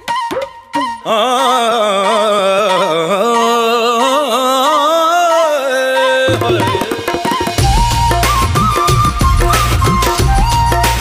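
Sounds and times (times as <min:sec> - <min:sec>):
drums: 0:06.3 - 0:11.0
bass: 0:07.6 - 0:11.0.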